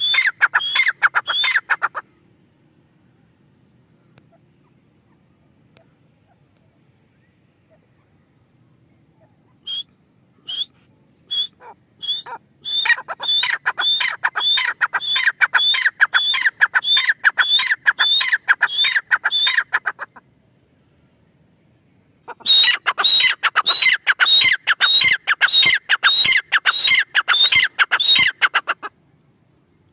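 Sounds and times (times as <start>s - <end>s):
francolin ringing calls: 0.0s - 1.9s, 11.3s - 19.8s, 22.3s - 28.8s.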